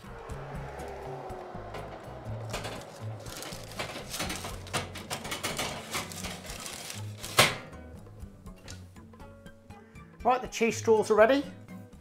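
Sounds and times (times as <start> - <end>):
metal tray and oven rack clattering: 3.8 - 7.7.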